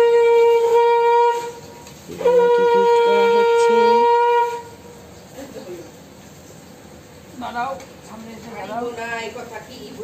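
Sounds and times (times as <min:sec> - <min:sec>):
conch shell blasts: 0:00.0 - 0:05.0.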